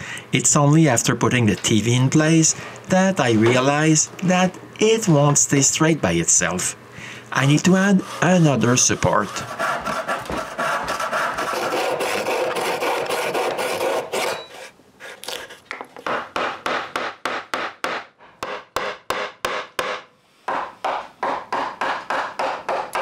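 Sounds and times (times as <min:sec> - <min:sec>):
handsaw cutting wood: 0:07.5 - 0:15.6
mallet knocking chisel: 0:15.7 - 0:23.0.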